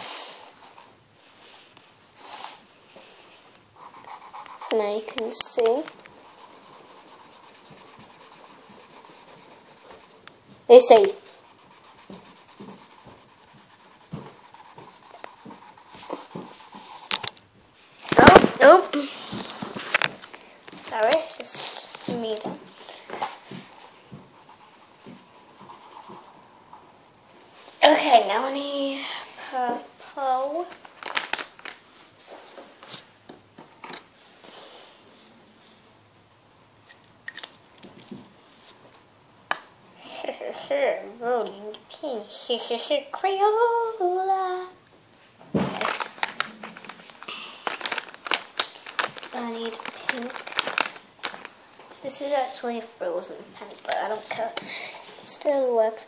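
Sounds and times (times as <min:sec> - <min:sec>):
marker pen scribbling on paper: 0:03.0 - 0:17.2, 0:23.5 - 0:26.5
pens clicking and tapping: 0:07.2 - 0:11.2, 0:45.8 - 0:51.4.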